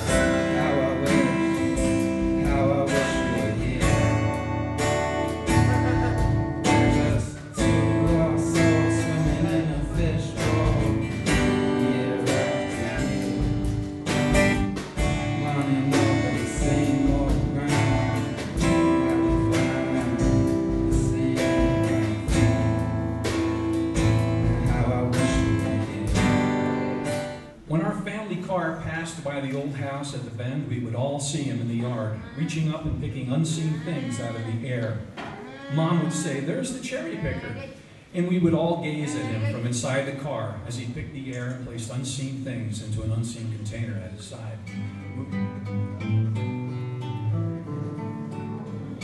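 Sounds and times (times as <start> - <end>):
drum kit steady beat: 0.0 - 27.6
bass guitar: 0.0 - 27.9, 44.8 - 49.0
strummed acoustic guitar: 0.0 - 31.0, 44.5 - 49.0.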